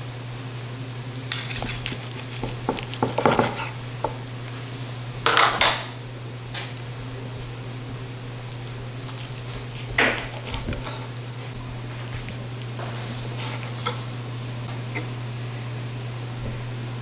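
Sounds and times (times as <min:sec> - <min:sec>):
steady low hum: 0:00.0 - 0:17.0
knife crunching through lobster shell: 0:01.3 - 0:03.8, 0:08.4 - 0:11.1
tongs and blade clinking: 0:01.3 - 0:03.8.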